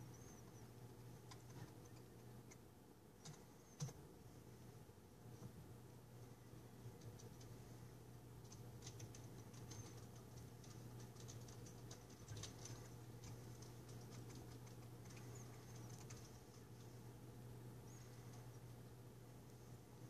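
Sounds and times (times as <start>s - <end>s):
faint low hum: 0.0s - 20.0s
faint high-pitched clicks: 0.4s - 4.0s, 8.4s - 17.0s.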